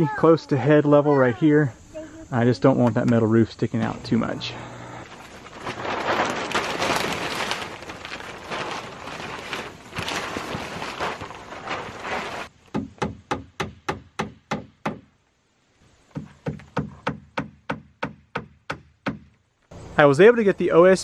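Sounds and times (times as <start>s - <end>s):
plastic sheet rustling: 3.8s - 12.6s.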